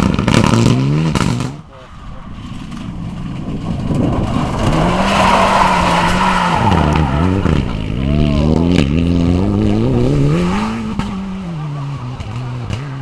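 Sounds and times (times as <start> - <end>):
rally car engine at full throttle: 0.0 - 13.0
tyres sliding on gravel: 2.5 - 7.7.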